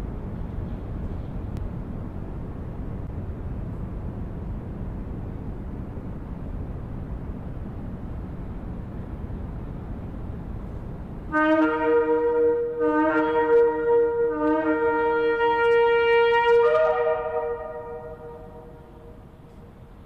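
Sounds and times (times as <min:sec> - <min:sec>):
low rushing noise: 0:00.0 - 0:20.0
ram's horn blast: 0:11.3 - 0:19.5.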